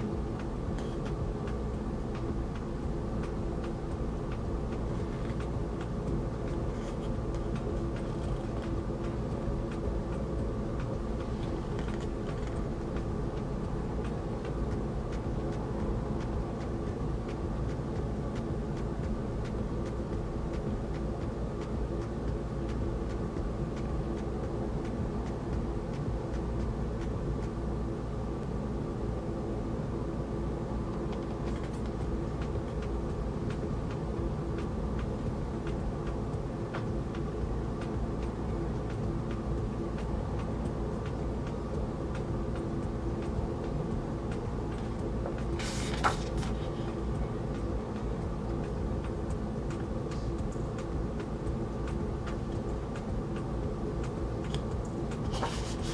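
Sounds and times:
steady mechanical hum: 0.0s - 55.9s
paper page turning: 45.6s - 46.6s.

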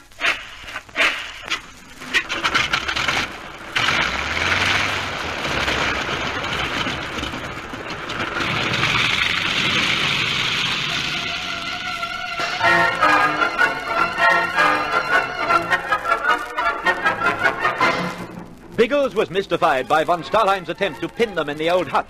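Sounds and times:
propeller aircraft engine starting: 0.0s - 16.2s.

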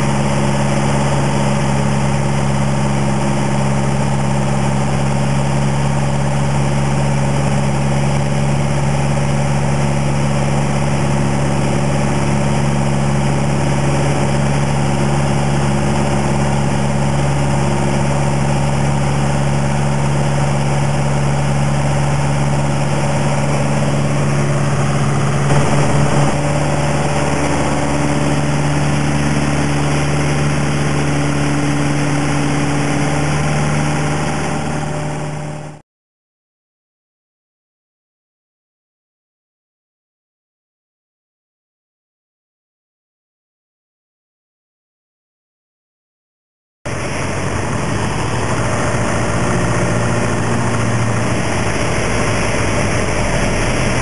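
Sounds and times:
propeller plane engine drone: 0.0s - 35.8s, 46.9s - 54.0s.

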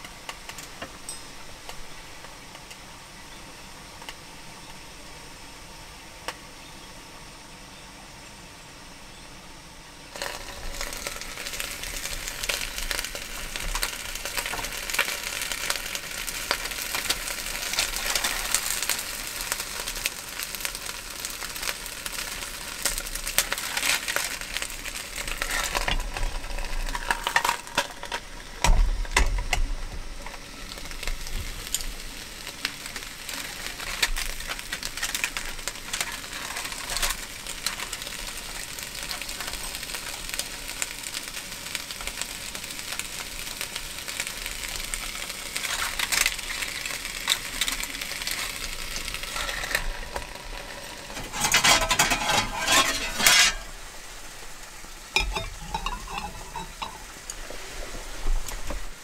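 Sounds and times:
fish sizzling and crackling: 0.0s - 7.6s, 9.9s - 59.0s.

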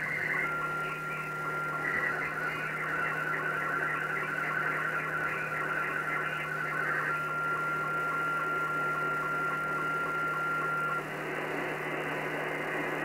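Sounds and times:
steady whistle-like tone: 0.0s - 11.1s
pulsing radio transmission: 0.0s - 13.0s
radio static: 0.0s - 13.0s.

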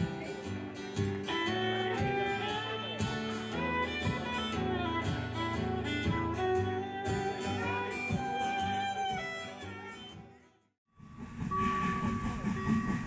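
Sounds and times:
guitar music over a beat: 0.0s - 10.5s.

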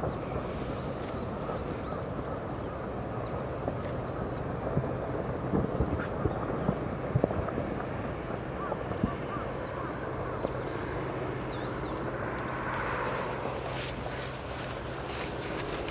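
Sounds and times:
low volcanic rumble: 0.0s - 15.9s
bird high whistled calls: 0.8s - 5.1s, 8.5s - 12.7s.

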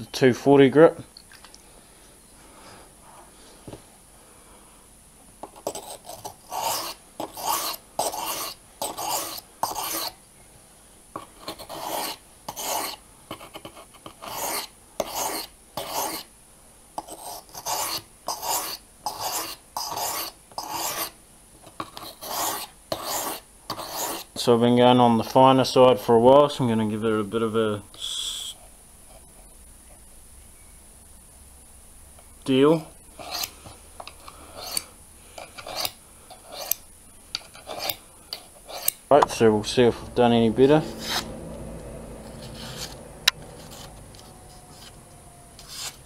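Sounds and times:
knife scraping on sharpening stone: 5.6s - 10.2s, 11.4s - 13.0s, 17.0s - 21.2s, 22.0s - 24.3s, 33.2s - 36.8s, 37.4s - 39.0s, 45.6s - 46.0s.

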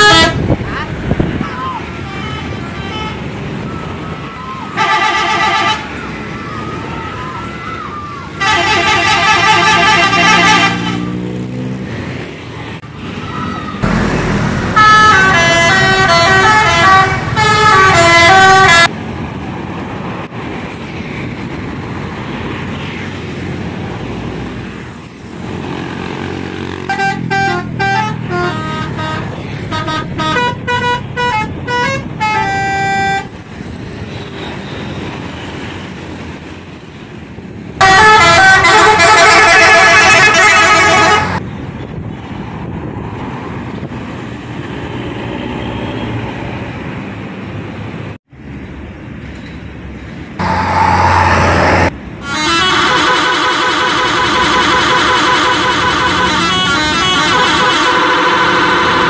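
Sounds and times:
musical bus air horn: 0.0s - 0.6s, 2.0s - 3.3s, 4.8s - 6.0s, 8.4s - 11.1s, 14.7s - 18.9s, 26.9s - 33.3s, 37.8s - 41.4s, 52.2s - 59.0s
engine and road noise: 0.0s - 59.0s.

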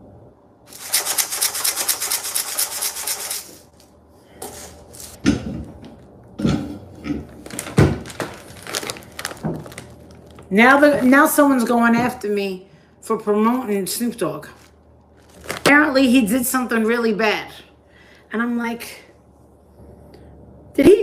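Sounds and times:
dry rice rattling in a cup: 0.7s - 3.5s.

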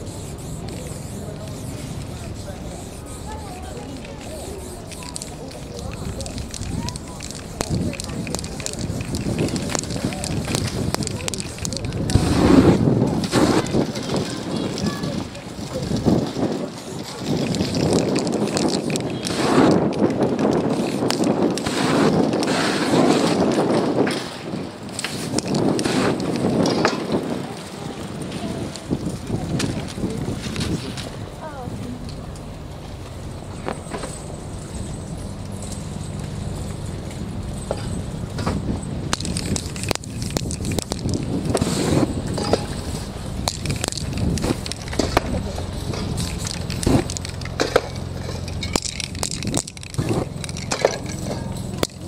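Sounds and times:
flames whooshing: 0.0s - 33.8s, 34.6s - 51.4s
steady low rumble: 0.0s - 52.0s
sharp clicks and knocks: 4.0s - 22.5s, 37.1s - 52.0s.

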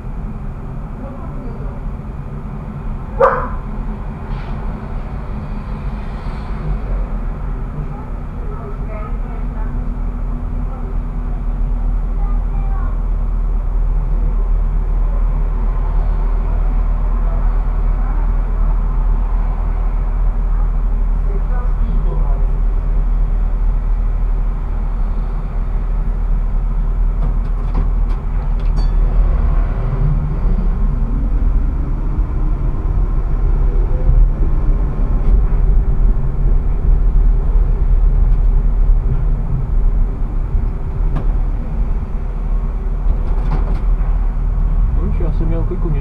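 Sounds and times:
tram low rumble: 0.0s - 46.0s.

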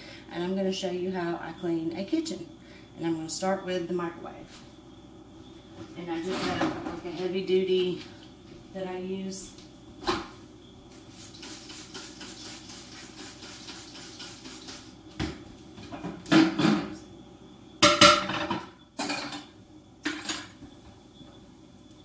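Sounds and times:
kitchen items clattering: 17.8s - 20.6s.

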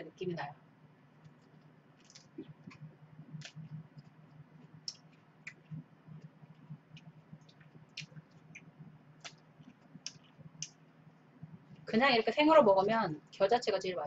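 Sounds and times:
low steady hum: 0.0s - 14.0s
chewing leafy greens: 1.2s - 10.9s.

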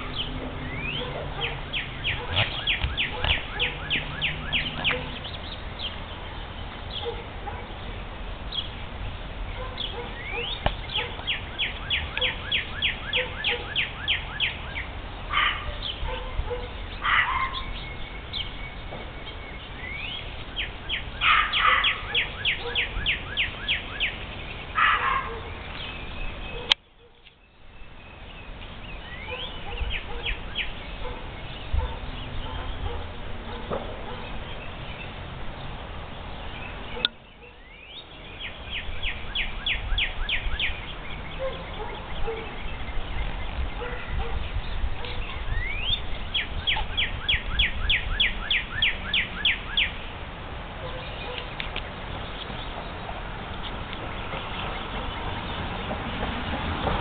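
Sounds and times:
harsh bird calls: 0.0s - 35.7s, 36.4s - 50.2s
songbirds whistling: 0.0s - 35.7s, 36.4s - 50.2s, 50.8s - 55.9s.

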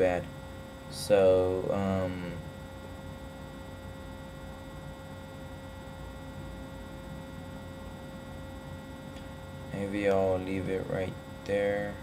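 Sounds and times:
electrical hum: 0.0s - 12.0s
thin steady tone: 0.0s - 12.0s.

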